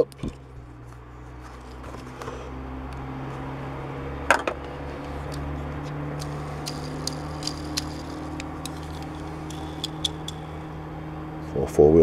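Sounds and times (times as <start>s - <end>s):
low hum: 0.0s - 12.0s
handling ticks: 4.9s - 10.9s.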